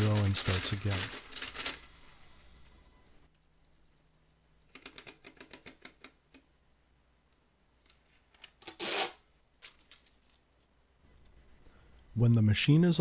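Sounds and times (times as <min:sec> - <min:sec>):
paper roll ratchet clicks: 0:00.0 - 0:01.8
paper tape ripping: 0:08.6 - 0:10.4.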